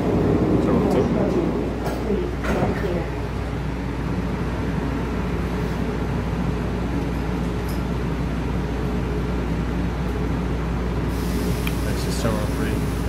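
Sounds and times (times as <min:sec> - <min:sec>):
low mechanical hum: 0:00.0 - 0:13.0
high hiss: 0:11.1 - 0:13.0.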